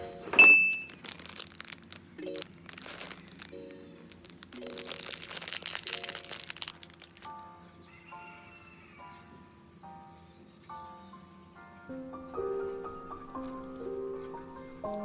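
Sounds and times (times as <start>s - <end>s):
soft background music: 0.0s - 15.0s
plastic packaging crinkling: 0.5s - 7.4s, 12.8s - 15.0s.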